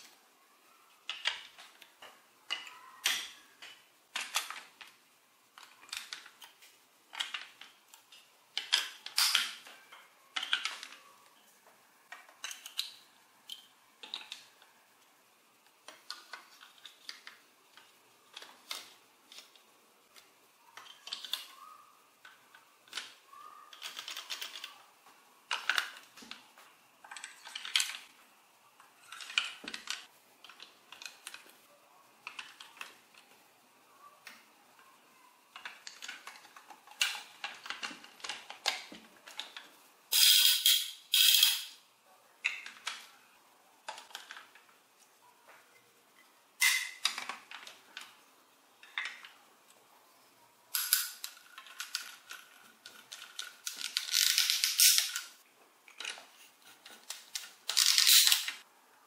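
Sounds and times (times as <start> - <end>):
plastic blocks clicking: 0.9 - 11.0, 12.1 - 14.7, 15.6 - 28.2, 28.8 - 31.6, 32.2 - 33.4, 35.5 - 41.7, 42.4 - 43.1, 43.8 - 44.8, 46.6 - 48.2, 48.8 - 49.4, 50.7 - 58.7.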